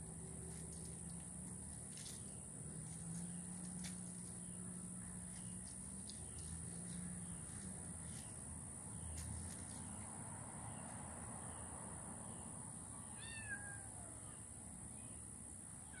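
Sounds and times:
cat meowing: 0:13.2 - 0:14.1.

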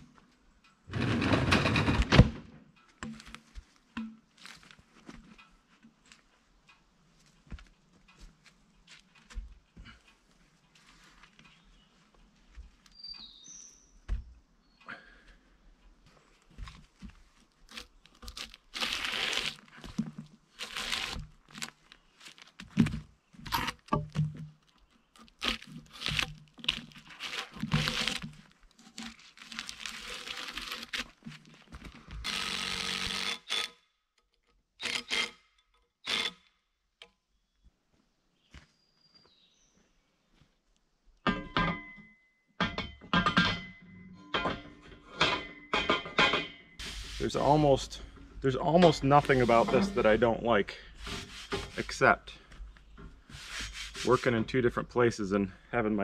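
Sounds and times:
irregular thuds and knocks: 0:14.1 - 0:14.4, 0:22.6 - 0:24.6.

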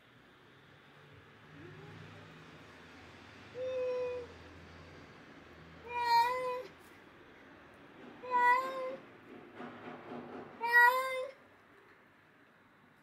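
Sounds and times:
cat meowing: 0:05.9 - 0:06.7, 0:08.2 - 0:09.0, 0:10.6 - 0:11.4.

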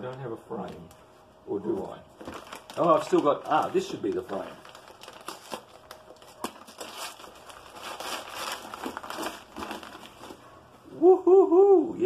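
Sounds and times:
paper crinkling and tearing: 0:02.2 - 0:10.5.

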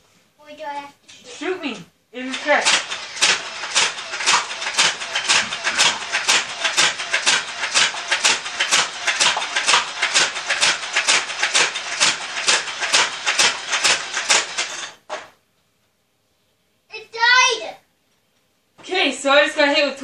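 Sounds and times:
toy blaster firing: 0:02.3 - 0:15.0.

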